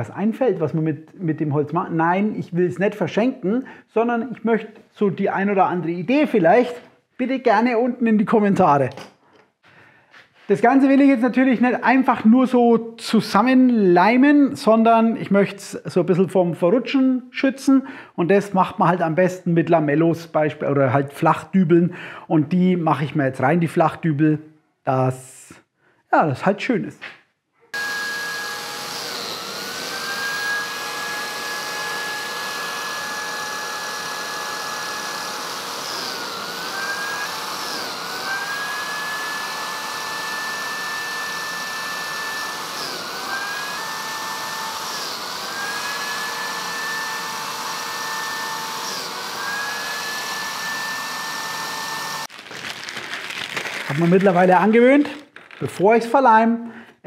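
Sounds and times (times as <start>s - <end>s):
biscuit joiner motor whine: 27.8s - 52.3s
dust extractor running: 27.8s - 52.3s.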